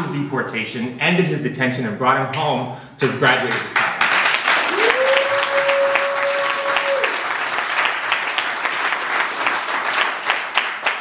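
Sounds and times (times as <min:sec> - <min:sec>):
audience applauding: 0:04.0 - 0:11.0
person cheering: 0:04.6 - 0:07.3.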